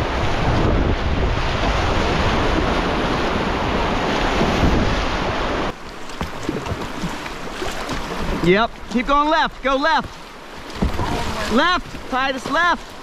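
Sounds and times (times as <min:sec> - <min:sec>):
wind noise on microphone: 0:00.0 - 0:07.1
quieter moving water: 0:00.0 - 0:13.0
whitewater rapids rushing: 0:00.0 - 0:13.0
small water splashes: 0:01.5 - 0:13.0.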